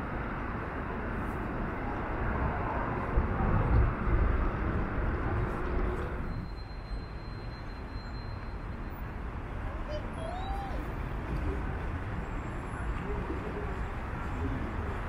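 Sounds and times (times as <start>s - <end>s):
road traffic noise: 0.0s - 15.0s.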